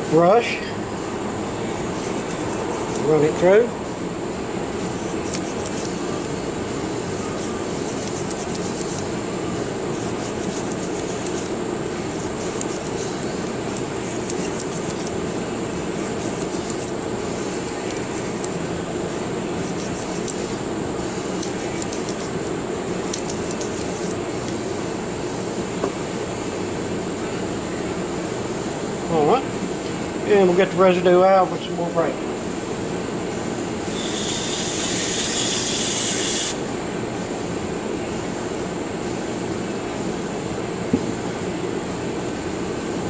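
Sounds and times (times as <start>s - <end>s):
brush scrubbing revolver cylinder: 10.0s - 11.5s, 12.2s - 15.2s, 16.0s - 16.9s.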